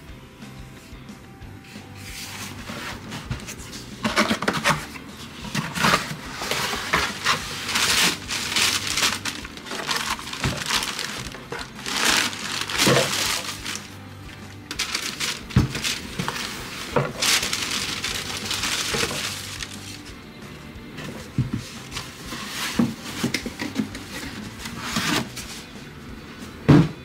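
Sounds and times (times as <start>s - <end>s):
cardboard box being opened: 2.4s - 14.0s, 14.8s - 20.0s
tissue paper crinkling: 5.5s - 14.0s, 14.7s - 20.1s.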